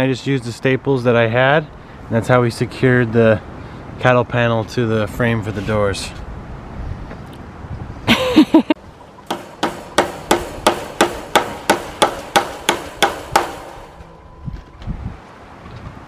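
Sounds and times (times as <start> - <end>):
hammer striking staples: 9.3 - 14.1.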